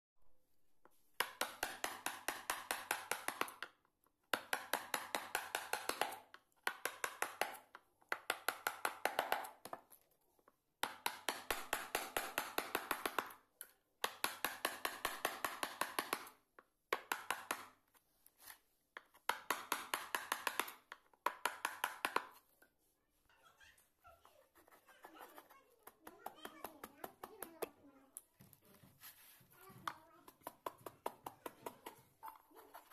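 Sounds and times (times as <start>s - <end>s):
chisel tapping into wood: 1.2s - 9.9s, 14.0s - 17.7s, 19.0s - 22.4s, 29.8s - 32.5s.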